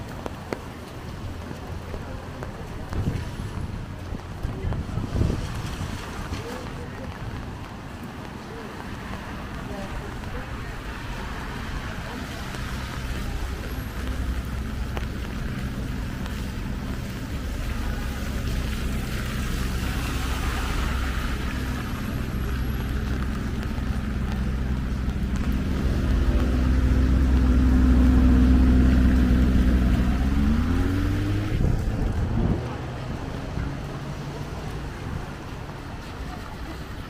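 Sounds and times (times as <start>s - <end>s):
vehicle engine humming: 0.0s - 37.0s
steady rain hiss: 0.1s - 36.9s.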